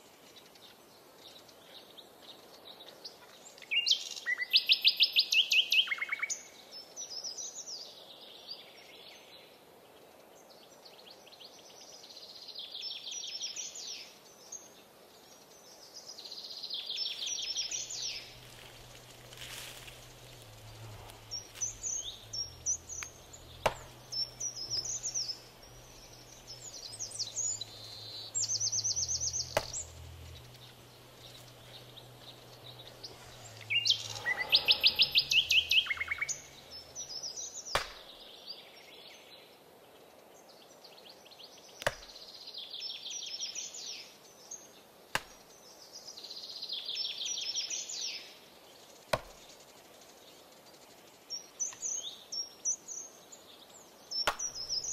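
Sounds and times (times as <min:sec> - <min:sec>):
birds chirping and calling: 0:17.0 - 0:38.2, 0:54.1 - 0:54.9
rapid bird trill: 0:17.3 - 0:37.6
low steady hum: 0:17.4 - 0:37.6.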